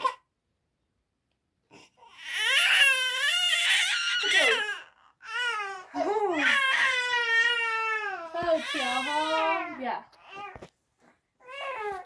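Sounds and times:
infant crying: 1.7 - 10.7, 11.4 - 12.0.

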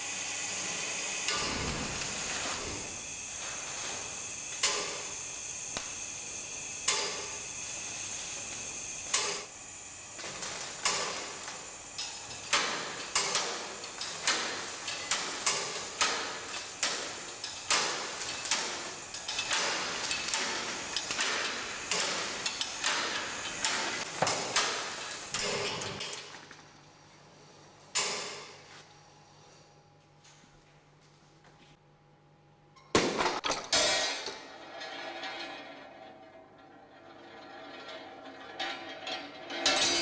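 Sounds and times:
sharp metallic knocks and clatters: 37.3 - 40.0.

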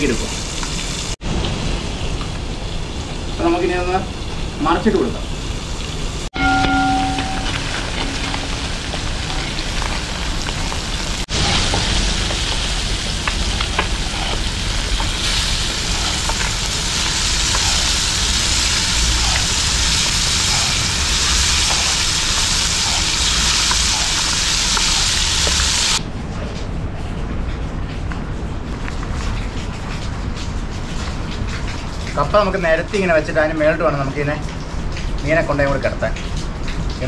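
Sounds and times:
fish sizzling in oil: 0.0 - 26.0.

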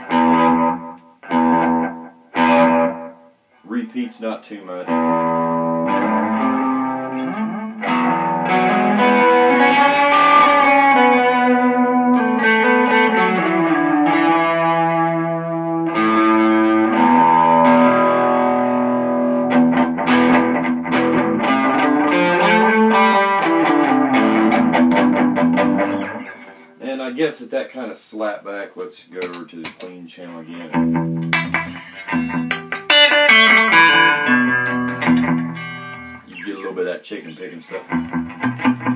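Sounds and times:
electric guitar with slapback delay: 4.9 - 26.6, 30.7 - 36.3, 37.8 - 38.9.

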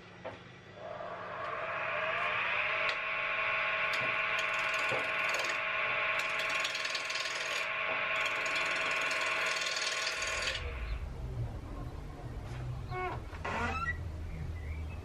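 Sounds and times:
lathe tool scraping spinning wood: 3.8 - 10.6.

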